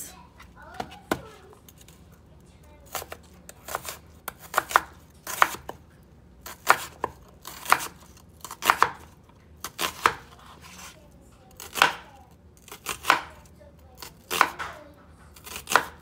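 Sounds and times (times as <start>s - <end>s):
knife slicing an onion: 2.8s - 5.8s, 6.4s - 16.0s.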